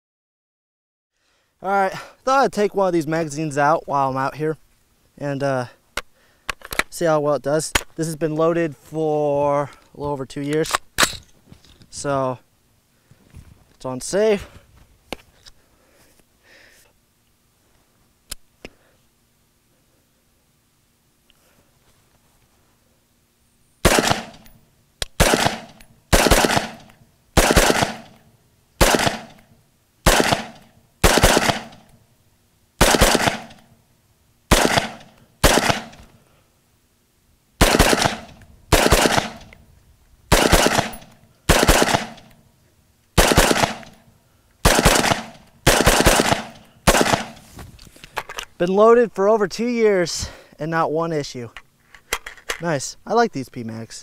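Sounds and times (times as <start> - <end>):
rifle shots: 23.8 - 24.5, 25.1 - 28.2, 28.8 - 29.4, 30.0 - 31.9, 32.8 - 33.7, 34.5 - 36.1, 37.6 - 39.6, 40.3 - 42.3, 43.2 - 44.0, 44.6 - 47.4.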